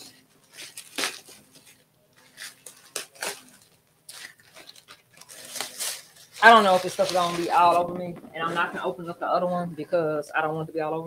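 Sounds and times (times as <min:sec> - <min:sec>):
cardboard box tearing: 0:00.5 - 0:07.9.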